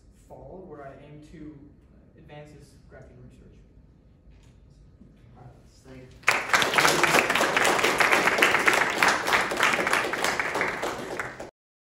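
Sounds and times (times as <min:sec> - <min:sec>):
audience applauding: 0:06.2 - 0:11.5.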